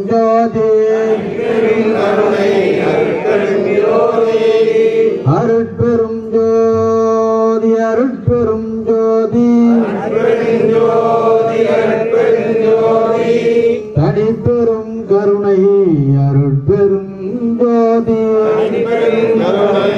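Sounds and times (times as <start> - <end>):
voices chanting in unison: 1.0 - 5.3, 9.7 - 13.9, 18.3 - 19.9.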